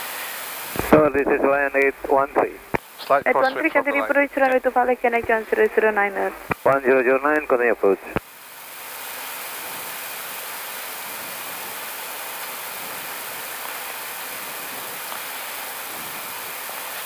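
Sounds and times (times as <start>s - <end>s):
rushing air hiss in cockpit: 0.0s - 2.1s, 14.1s - 17.0s.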